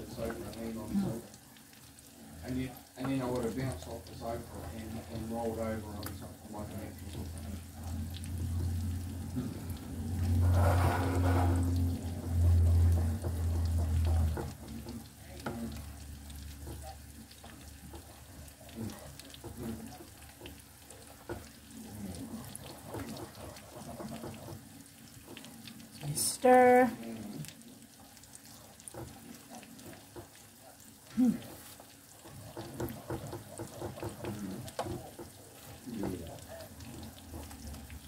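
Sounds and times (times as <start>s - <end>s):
wooden spoon scraping saucepan: 10.2s - 14.9s, 19.4s - 24.7s, 31.5s - 35.9s.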